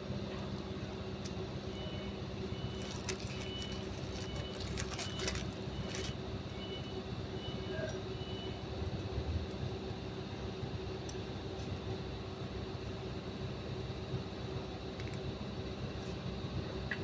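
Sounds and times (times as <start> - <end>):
paper wrappers crinkling: 2.7 - 6.2.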